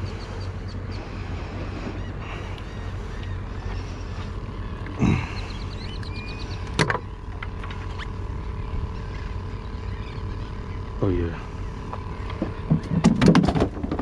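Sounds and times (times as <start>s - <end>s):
low motor hum: 0.0s - 14.0s.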